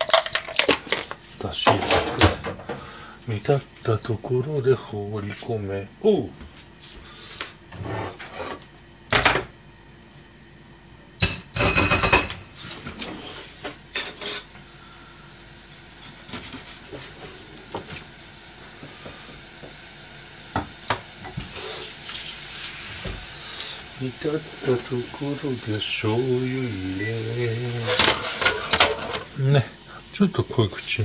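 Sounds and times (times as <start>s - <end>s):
pans and dishes clattering: 0.0s - 2.9s, 11.2s - 14.5s, 27.8s - 29.4s
liquid heating in a pan hissing: 6.8s - 8.7s, 12.4s - 31.0s.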